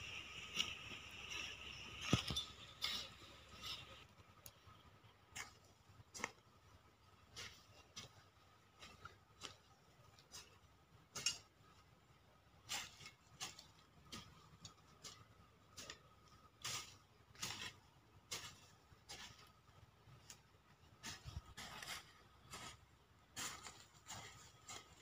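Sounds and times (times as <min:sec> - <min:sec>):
hand tool scraping dry soil: 0:00.0 - 0:11.9, 0:12.5 - 0:25.0.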